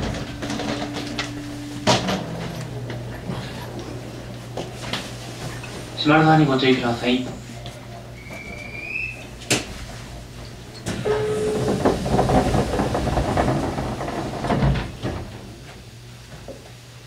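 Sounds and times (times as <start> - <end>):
sharp click of train doors: 0.0 - 3.9, 9.4 - 9.8, 10.8 - 16.6
steady train hum: 0.0 - 17.0
train door hiss with rumble: 0.0 - 17.0.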